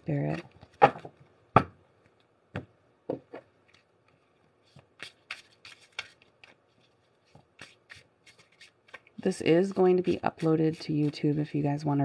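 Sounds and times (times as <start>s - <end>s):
cards being shuffled: 3.6s - 9.3s.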